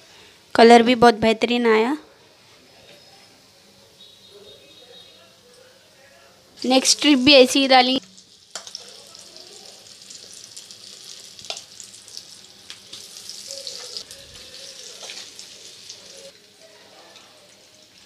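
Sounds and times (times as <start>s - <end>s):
batter deep-frying in oil: 6.6s - 18.0s.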